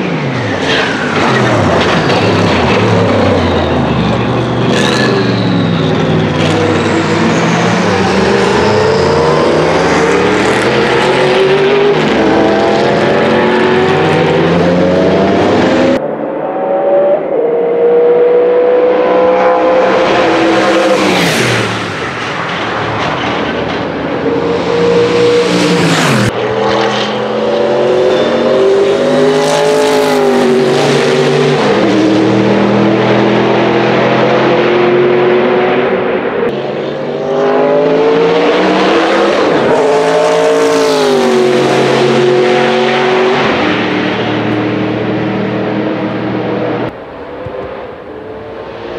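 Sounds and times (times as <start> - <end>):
racing car engine shifting gears: 0.0 - 16.0
racing car passing by: 18.0 - 46.9.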